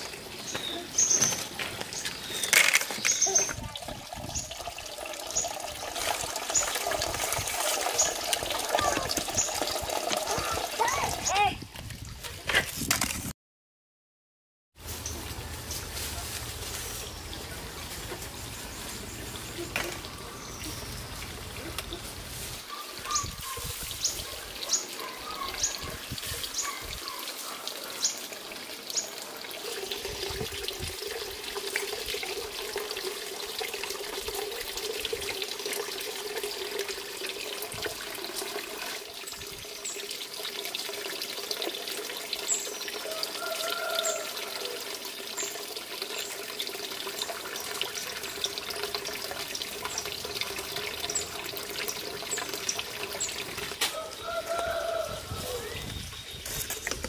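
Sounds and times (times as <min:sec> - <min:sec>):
birds chirping: 0:00.0 - 0:04.6, 0:16.9 - 0:22.1, 0:22.7 - 0:28.3
running water: 0:00.0 - 0:12.5, 0:14.8 - 0:57.0.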